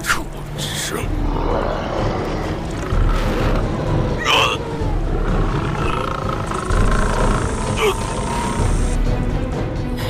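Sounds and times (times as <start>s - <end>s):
monster growling roar: 1.2s - 9.0s.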